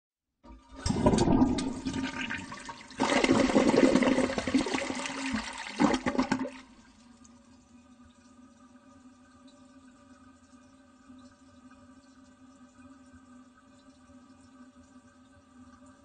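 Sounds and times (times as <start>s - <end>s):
toilet flushing: 0.5s - 12.8s.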